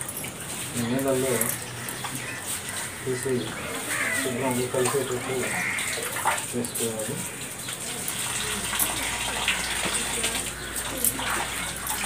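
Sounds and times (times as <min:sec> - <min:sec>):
water splashing in plastic drum: 0:04.7 - 0:12.0.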